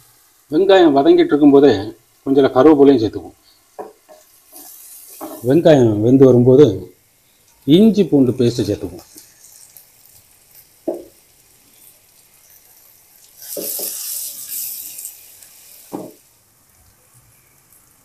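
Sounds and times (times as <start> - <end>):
onions sizzling in oil: 0.0 - 18.0
wooden spatula scraping pan: 4.1 - 5.6, 13.4 - 15.1.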